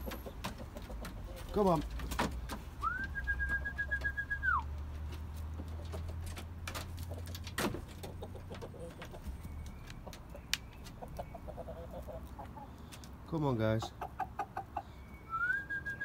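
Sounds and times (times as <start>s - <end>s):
person whistling long note: 2.8s - 4.6s, 15.3s - 16.0s.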